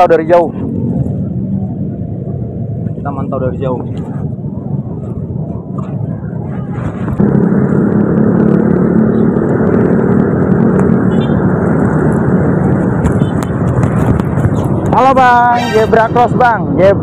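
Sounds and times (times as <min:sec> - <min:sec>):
motor scooter engines running: 0:07.2 - 0:15.0.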